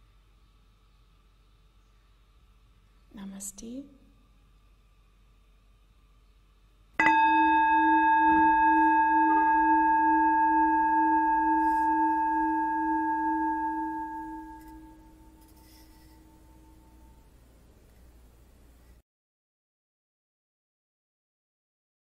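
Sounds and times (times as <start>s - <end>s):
singing bowl ringing: 7.0s - 17.3s.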